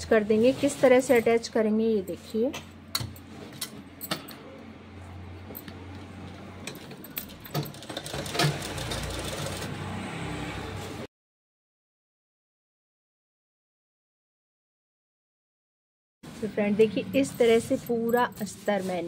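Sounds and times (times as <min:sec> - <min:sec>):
sewing machine running: 0:06.6 - 0:09.9.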